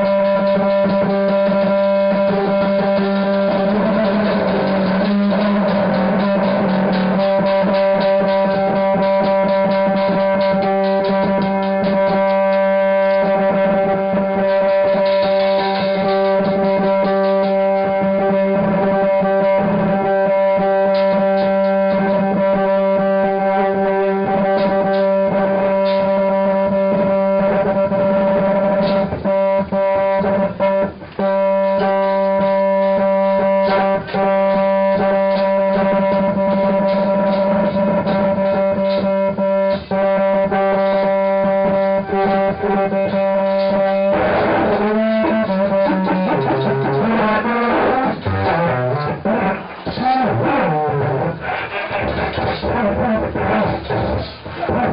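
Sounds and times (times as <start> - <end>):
rapid crackling clicks: 0.0 - 19.9
droning noise music tone: 0.0 - 54.9.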